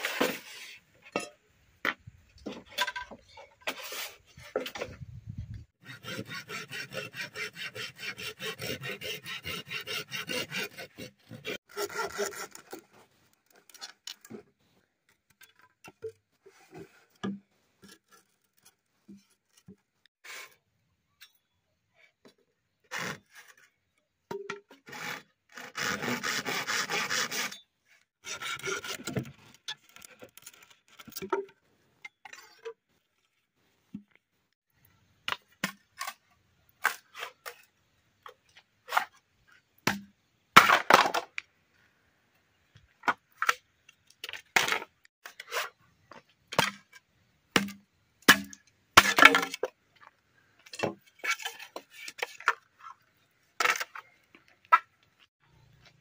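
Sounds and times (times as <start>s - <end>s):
rasping splitting or scraping: 0.0s - 1.1s, 2.4s - 20.6s, 22.8s - 23.8s, 24.7s - 33.6s, 44.2s - 47.0s, 50.6s - 55.9s
machete splitting bamboo: 47.5s - 49.7s.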